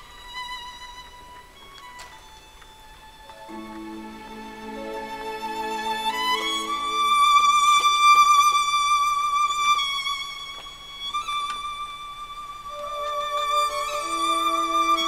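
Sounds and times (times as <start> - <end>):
soft low accompaniment: 0.0 - 15.0
violin playing long high notes: 0.0 - 15.0.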